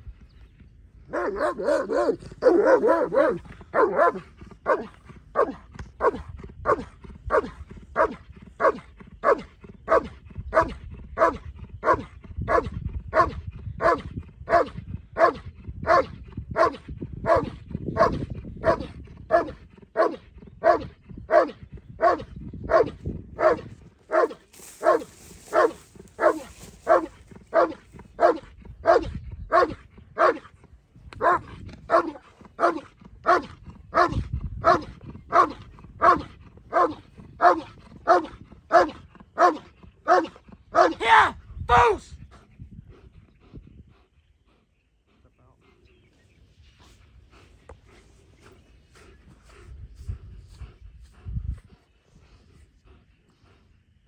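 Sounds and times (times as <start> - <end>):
dog barking: 1.1 - 30.4, 31.2 - 41.1.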